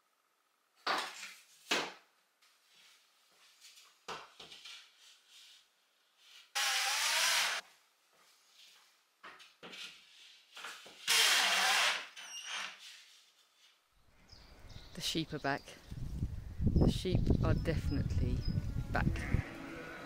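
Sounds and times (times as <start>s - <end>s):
cordless drill driving a screw: 6.6s - 7.6s, 11.1s - 12.7s.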